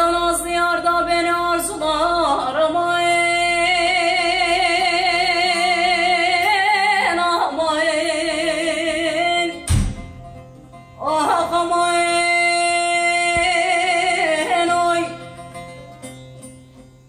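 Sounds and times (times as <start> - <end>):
woman singing with vibrato: 0.0 - 9.7, 11.0 - 15.5
plucked lute: 0.0 - 17.0
loud thump: 9.6 - 10.3.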